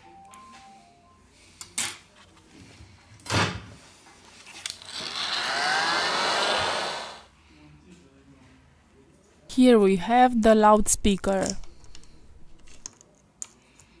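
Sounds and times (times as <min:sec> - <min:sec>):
heat gun blowing air: 0:04.9 - 0:07.3.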